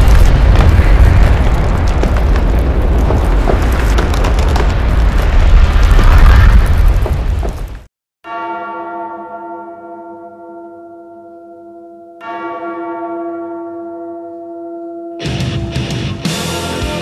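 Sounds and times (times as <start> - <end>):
deep bell ringing: 8.2 - 16.0
loud music: 15.3 - 17.0.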